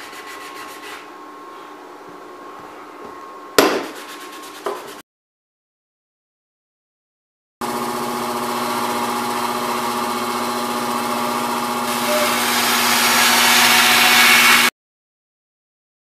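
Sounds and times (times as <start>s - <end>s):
bandsaw motor hum: 7.6s - 14.7s
bandsaw blade cutting metal sheet: 11.9s - 14.7s.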